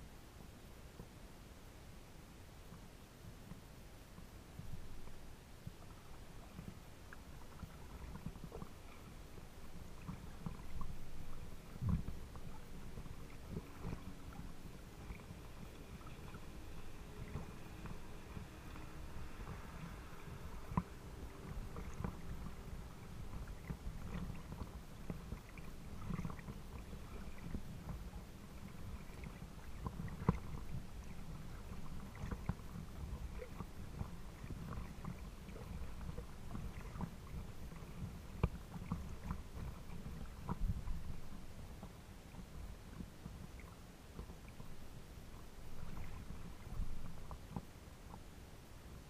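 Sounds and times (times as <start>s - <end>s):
water lapping against boat: 4.2s - 49.0s
small splashes and knocks: 4.6s - 42.0s.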